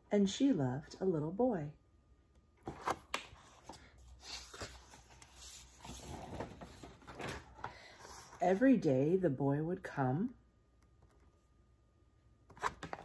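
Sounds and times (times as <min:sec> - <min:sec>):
book pages rustling: 0:02.6 - 0:08.4.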